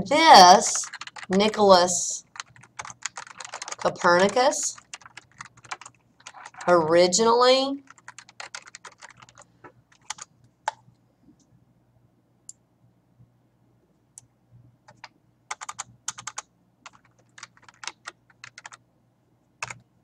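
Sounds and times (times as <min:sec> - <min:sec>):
faint steady hum: 0:00.0 - 0:20.0
typing on keyboard: 0:00.7 - 0:06.7, 0:07.8 - 0:10.8, 0:14.9 - 0:18.8, 0:19.6 - 0:19.9.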